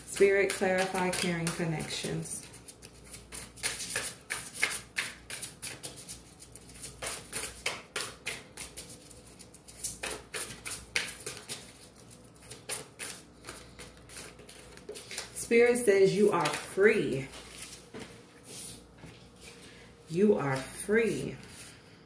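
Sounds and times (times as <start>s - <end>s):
cards being shuffled: 0.2s - 15.4s, 16.3s - 16.7s, 17.3s - 18.7s.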